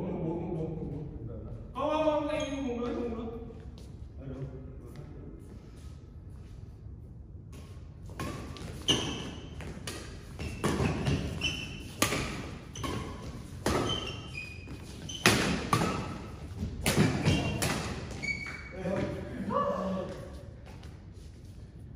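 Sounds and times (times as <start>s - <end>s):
rackets hitting shuttlecock: 7.5s - 18.6s
shoes squeaking on court: 8.1s - 18.9s.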